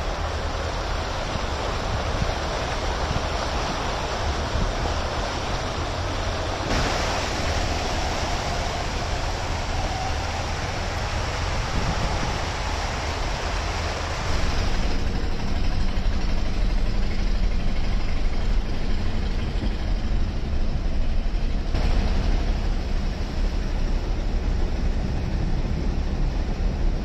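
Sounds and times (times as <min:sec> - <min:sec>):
tyres hissing through water: 0:00.0 - 0:18.4
engine rumble: 0:00.0 - 0:27.0.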